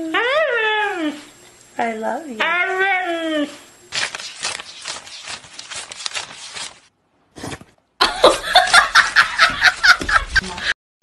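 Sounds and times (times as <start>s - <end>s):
banknotes flicked and rustled: 3.9s - 6.9s.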